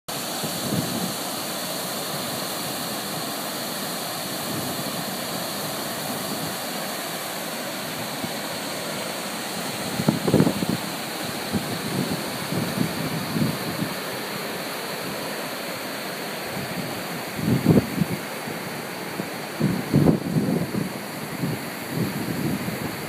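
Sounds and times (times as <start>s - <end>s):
river water over rock cascades: 0.1s - 23.0s
wind buffeting microphone: 0.4s - 1.2s, 9.4s - 14.0s, 16.5s - 18.3s, 19.0s - 23.0s.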